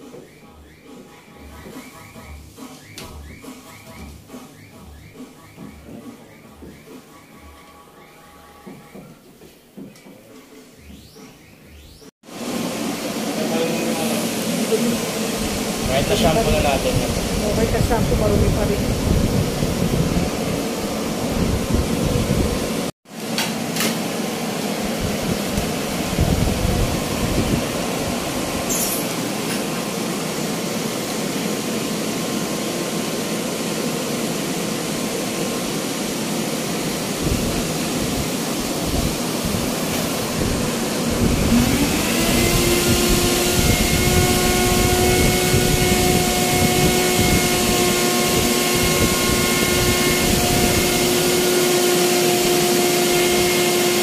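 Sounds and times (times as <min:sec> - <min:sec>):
blower rushing air: 0:12.2 - 0:54.0
motor whine: 0:36.8 - 0:54.0.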